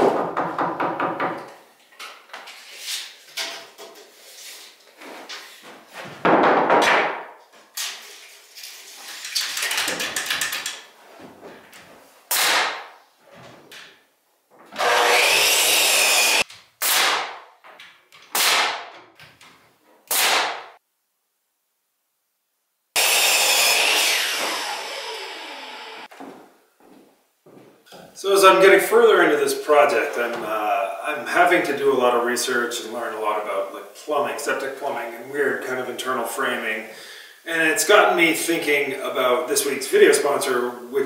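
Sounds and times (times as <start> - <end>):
power saw cutting wood: 14.7 - 17.1, 23.0 - 26.1.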